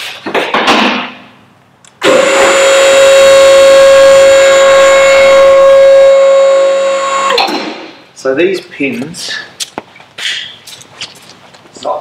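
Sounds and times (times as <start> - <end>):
hydraulic pump motor whine: 2.0 - 7.8.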